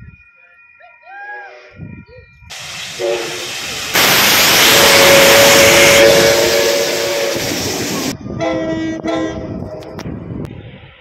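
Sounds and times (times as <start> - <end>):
loud steam hiss: 2.5 - 8.2
steam locomotive whistle: 2.5 - 10.0
diesel locomotive horn: 2.8 - 10.0.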